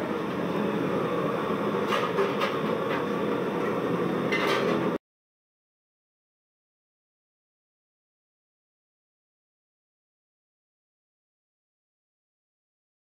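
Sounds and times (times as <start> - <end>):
stove fire rushing: 0.0 - 5.0.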